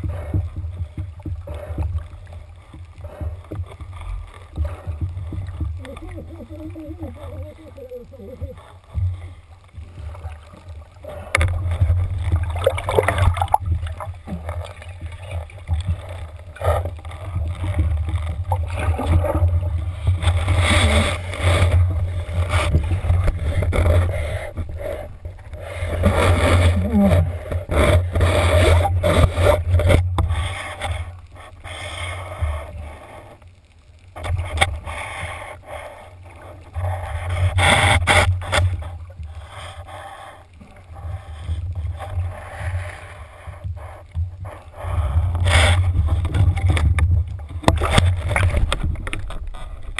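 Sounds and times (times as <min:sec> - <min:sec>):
underwater splashing and rushing: 0:00.0 - 0:49.9
knocks and scrapes: 0:10.0 - 0:31.6, 0:36.8 - 0:39.1, 0:43.7 - 0:49.9.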